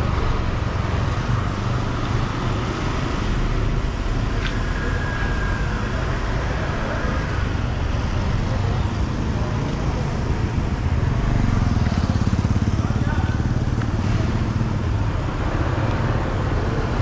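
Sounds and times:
city street traffic: 0.0s - 17.0s
motorbike passing close: 8.6s - 17.0s.

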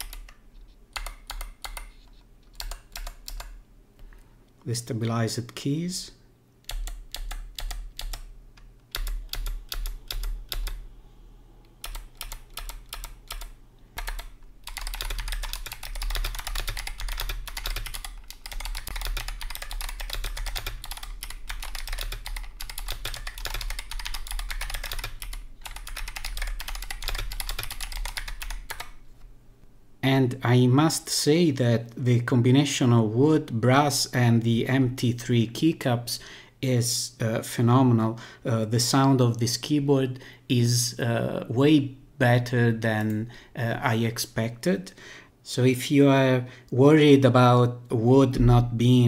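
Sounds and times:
clicky keyboard typing: 0.0s - 3.6s, 6.7s - 8.3s, 8.9s - 10.8s, 11.8s - 28.9s.

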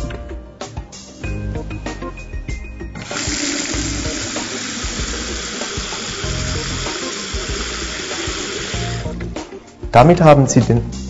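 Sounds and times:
tap water gushing into a sink: 3.0s - 9.0s.

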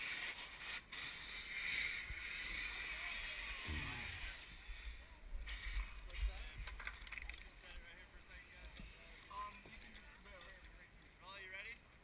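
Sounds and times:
faint distant voices: 2.6s - 12.0s.

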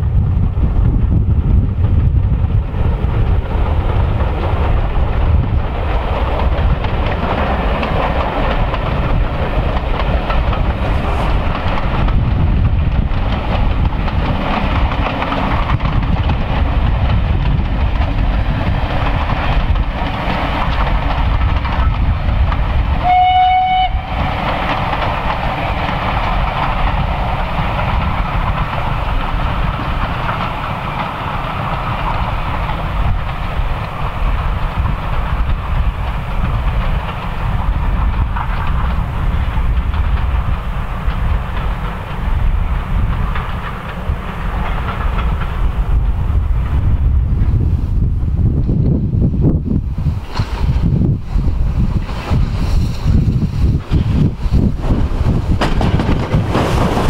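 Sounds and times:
steam train rumbling: 0.0s - 57.0s
locomotive whistle blast: 23.0s - 24.2s.

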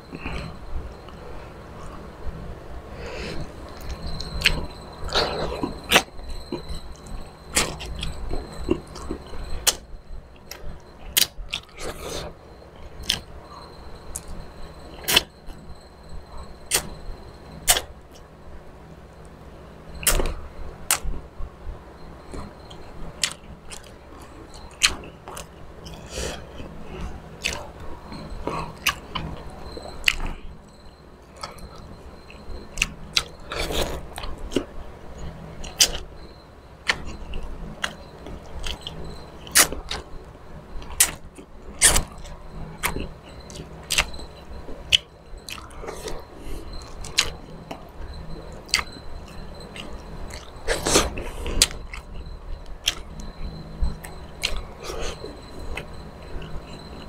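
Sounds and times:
person chewing: 23.2s - 24.0s, 24.6s - 27.7s, 30.0s - 30.4s, 32.8s - 36.0s, 44.9s - 47.9s, 48.7s - 48.9s, 49.7s - 52.2s, 52.8s - 53.1s, 54.0s - 56.7s.

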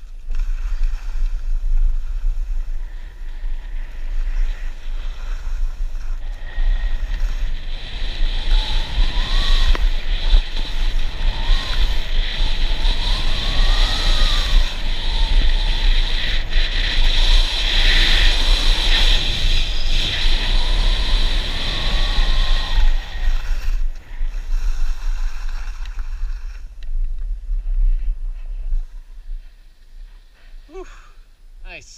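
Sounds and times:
skis scraping over snow: 0.0s - 30.7s
wind buffeting microphone: 0.0s - 30.8s.

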